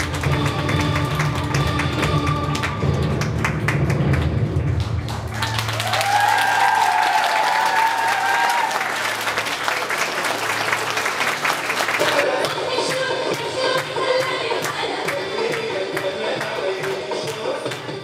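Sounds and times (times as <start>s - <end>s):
dance music: 0.0s - 5.0s, 11.8s - 18.0s
audience applauding: 0.0s - 12.6s.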